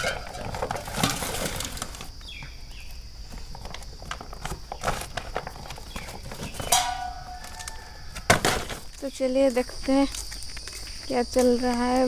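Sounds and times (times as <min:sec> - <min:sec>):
metal bowl ringing: 0:06.7 - 0:07.4.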